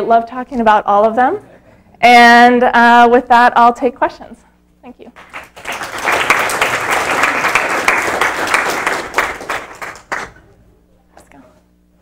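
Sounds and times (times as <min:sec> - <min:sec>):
audience applauding: 0:05.2 - 0:10.4.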